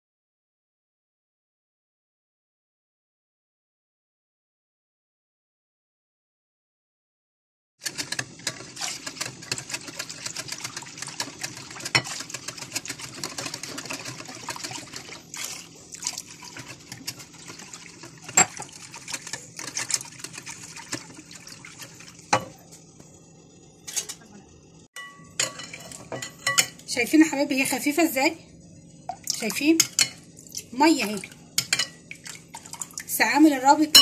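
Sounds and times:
whisk beating sauce in glass bowl: 7.8s - 22.3s
whisk knocking on bowl: 8.4s - 15.1s.

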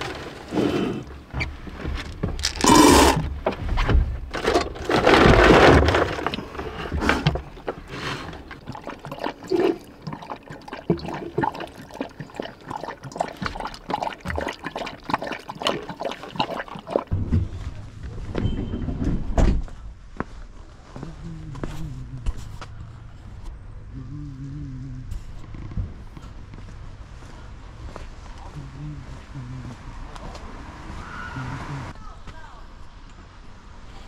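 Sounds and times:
dog lapping from metal bowl: 7.2s - 17.1s
liquid pouring into metal bowl: 7.4s - 17.1s.

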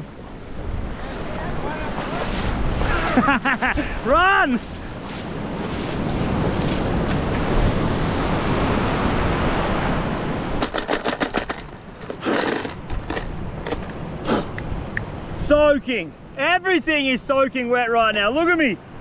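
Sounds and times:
wave rushing over shore: 0.0s - 11.6s
sharp knocks and clatters: 10.6s - 14.0s.

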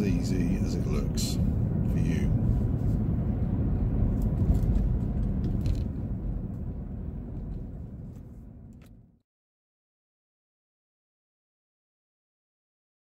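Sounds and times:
car engine and road rumble: 0.0s - 9.2s.

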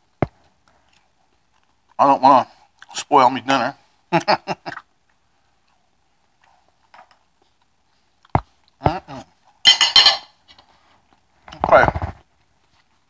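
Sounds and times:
man chewing: 0.6s - 2.0s.

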